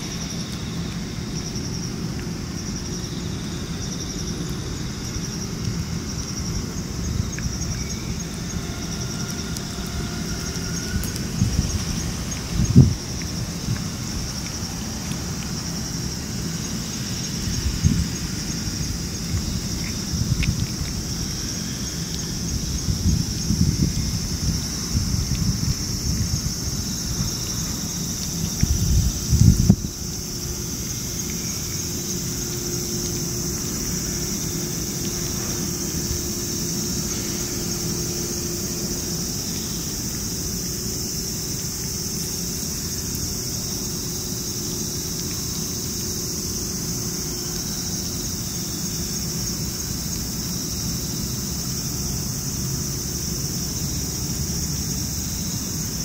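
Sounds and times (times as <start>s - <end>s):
insects buzzing: 0.0s - 56.0s.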